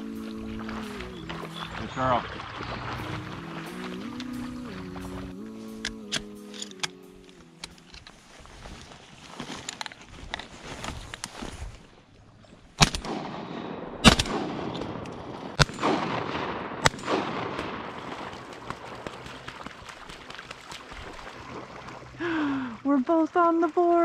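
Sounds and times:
shotgun shots with echo: 12.8s - 18.3s.

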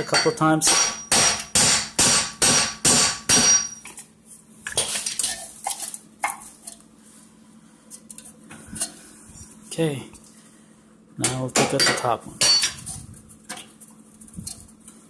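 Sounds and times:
hammer striking metal: 0.0s - 3.8s, 11.2s - 12.8s.

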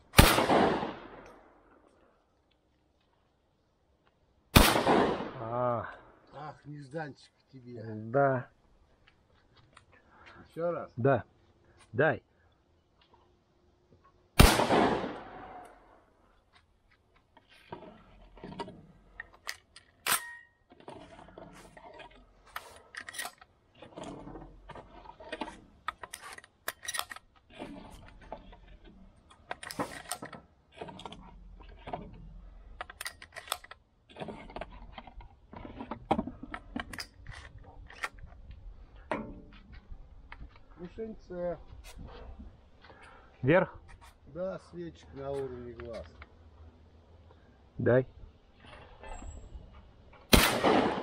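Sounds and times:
sharp crack: 0.0s - 1.6s, 4.6s - 5.7s, 14.4s - 15.9s, 50.3s - 51.0s
shotgun shot echoing: 0.1s - 1.4s, 4.5s - 5.5s, 14.4s - 15.6s, 50.3s - 51.0s.

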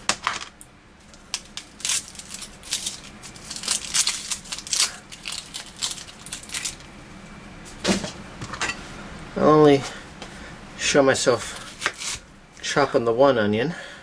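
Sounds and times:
onion skin crackling: 1.0s - 7.0s, 11.4s - 12.3s.

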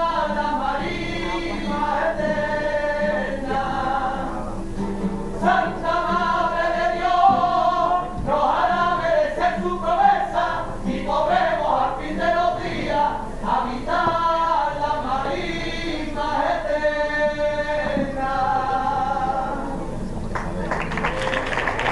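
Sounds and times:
person singing unaccompanied: 0.0s - 20.0s.

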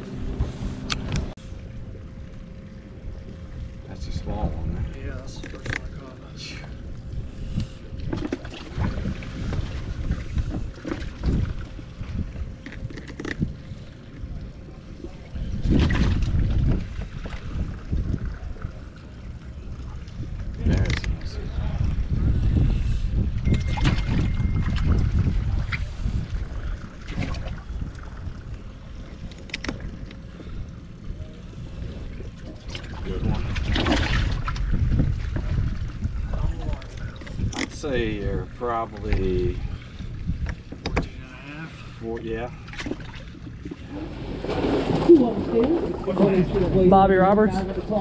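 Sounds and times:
wind buffeting microphone: 2.6s - 41.2s.

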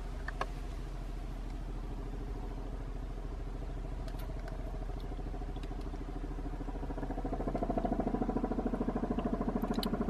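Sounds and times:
twin-rotor helicopter in flight: 4.0s - 10.0s.

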